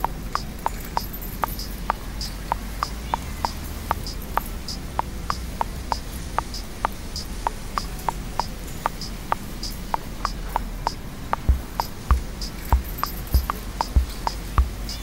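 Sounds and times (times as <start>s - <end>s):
low steady hum: 0.0s - 15.0s
regular clicking: 0.0s - 15.0s.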